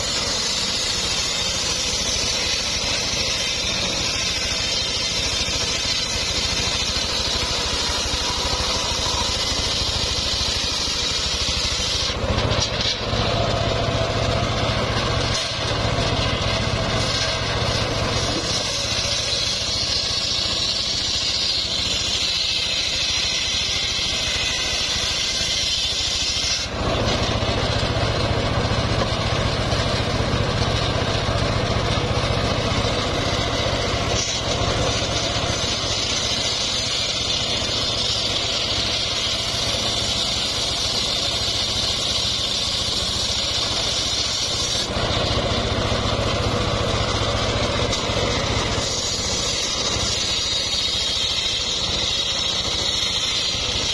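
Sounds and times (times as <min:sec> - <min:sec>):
circular saw ripping a log: 0:00.0 - 0:53.9.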